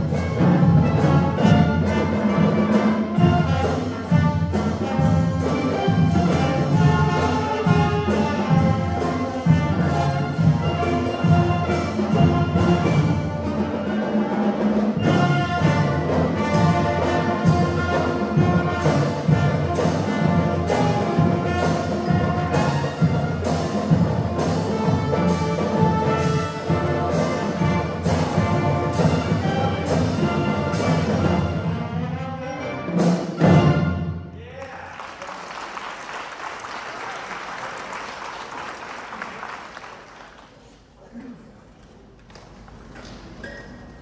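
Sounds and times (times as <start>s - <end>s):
brass band with percussion playing: 0.0s - 34.4s
audience applause: 34.4s - 40.9s.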